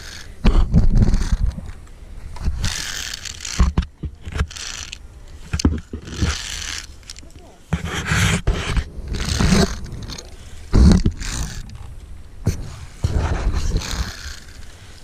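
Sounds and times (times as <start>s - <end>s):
thumping on microphone: 10.7s - 11.2s.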